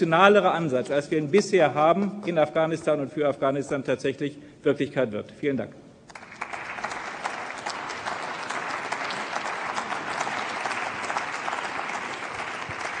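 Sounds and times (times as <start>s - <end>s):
crowd applauding: 6.1s - 13.0s.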